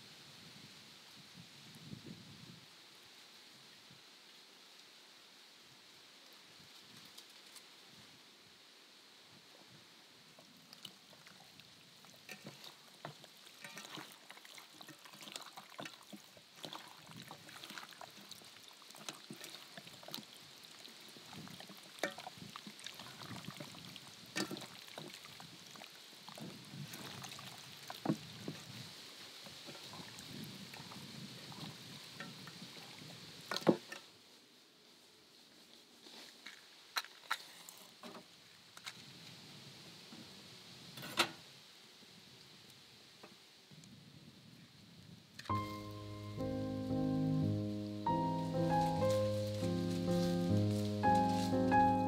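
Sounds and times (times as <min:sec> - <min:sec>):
hands kneading meat wet squelching: 0:12.4 - 0:20.4.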